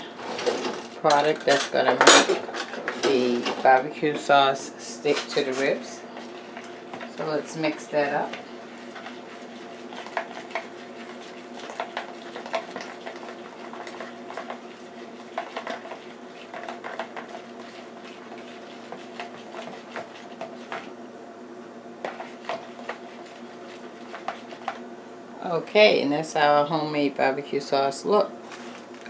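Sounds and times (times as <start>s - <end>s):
faint steady hum: 0.0s - 29.0s
metal spoon scraping plastic bowl: 5.0s - 20.9s.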